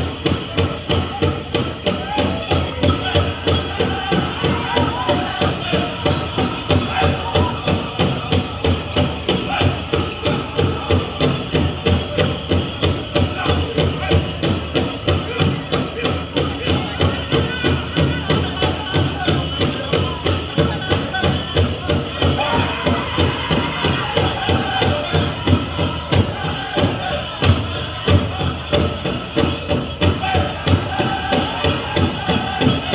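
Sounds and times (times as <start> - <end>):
big drum fast steady beat: 0.0 - 32.9
dancers' bells jingling: 0.0 - 32.9
people singing: 1.9 - 32.9.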